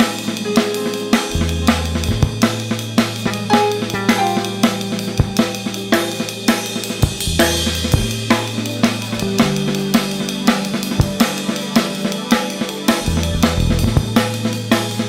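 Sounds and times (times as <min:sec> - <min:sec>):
drum kit beat: 0:00.0 - 0:15.0
keyboard chords: 0:00.0 - 0:15.0
electric bass notes: 0:01.2 - 0:09.8, 0:13.1 - 0:14.2.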